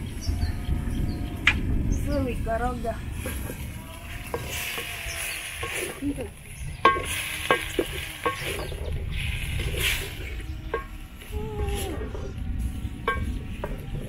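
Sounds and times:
food sizzling: 2.8s - 12.0s
wooden stick scraping metal pot: 3.2s - 14.0s
stick knocking against pot: 6.8s - 8.7s, 10.7s - 11.0s.

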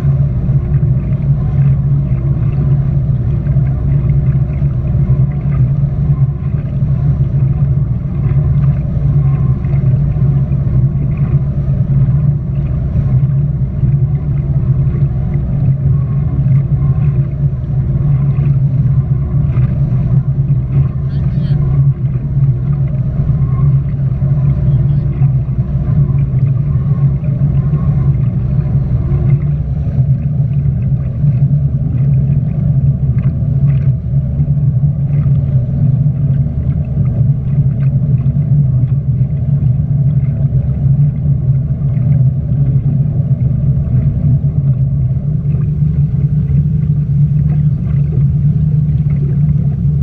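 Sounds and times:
speedboat engine droning: 0.0s - 50.0s
water rushing: 0.0s - 50.0s.

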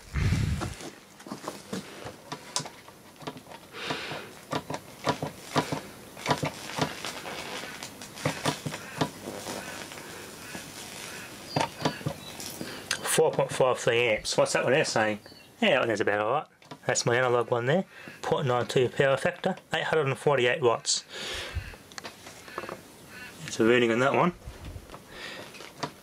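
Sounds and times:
electric arcing crackles and snaps: 0.0s - 15.0s.

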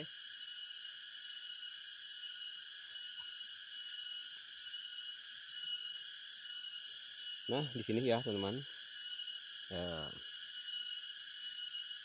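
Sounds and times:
insects chorus shrilling: 0.0s - 12.0s.

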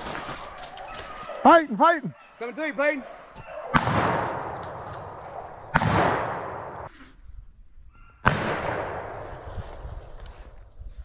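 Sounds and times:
shotgun shots with echo: 3.7s - 6.9s, 8.2s - 9.2s.

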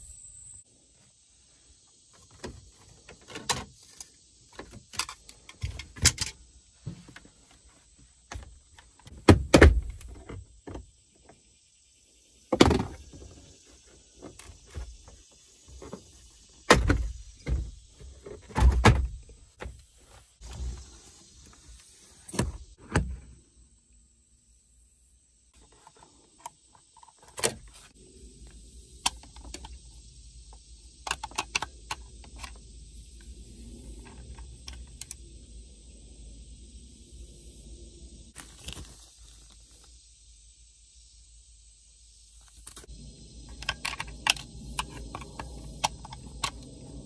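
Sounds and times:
low rumble and hiss: 27.4s - 47.0s.

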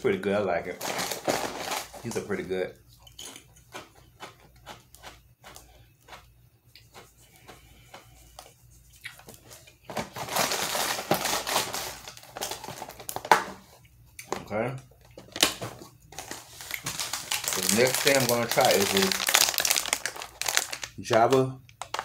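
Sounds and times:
crackers being chewed: 3.2s - 9.9s, 15.0s - 22.0s.

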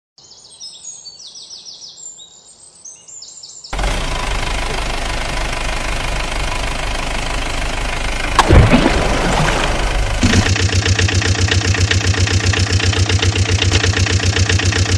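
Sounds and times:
vehicle engine running: 3.8s - 14.9s.

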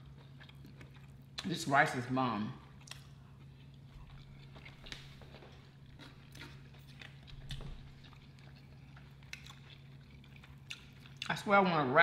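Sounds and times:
chewing and biting: 0.0s - 1.5s, 2.6s - 11.4s
low steady hum: 0.0s - 12.0s.

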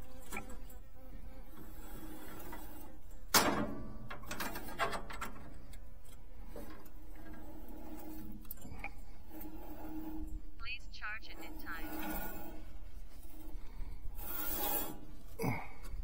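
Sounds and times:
light clicks and rattles: 3.3s - 9.0s.

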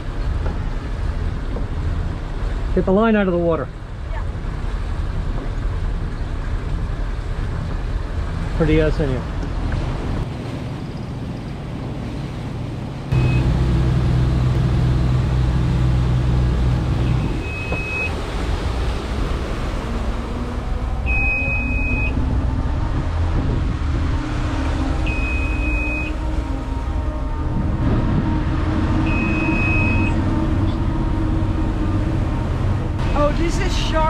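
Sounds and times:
boat engines running: 0.0s - 34.0s
short high beep: 21.1s - 22.2s, 25.1s - 26.1s, 29.1s - 30.2s.

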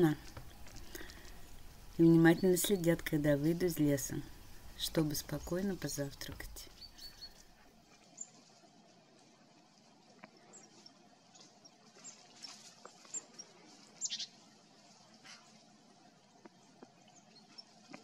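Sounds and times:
high-pitched bird calls: 14.0s - 14.4s.

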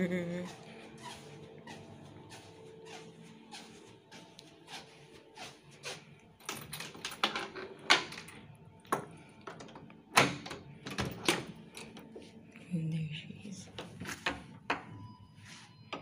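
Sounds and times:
soft footsteps: 0.3s - 6.4s.

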